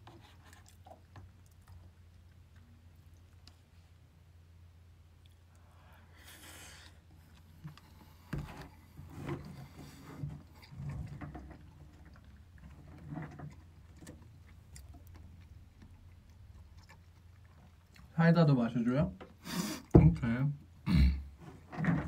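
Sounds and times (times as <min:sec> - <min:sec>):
chewing: 0:00.0 - 0:03.7, 0:09.5 - 0:18.1.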